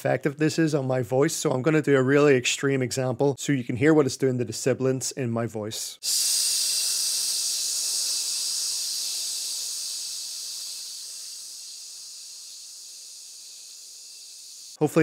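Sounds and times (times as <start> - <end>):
person hissing into microphone: 6.0 - 14.8.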